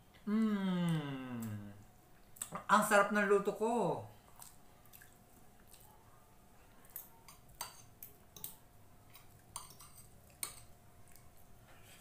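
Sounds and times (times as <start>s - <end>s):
cutlery clinking on a plate: 7.0s - 10.7s.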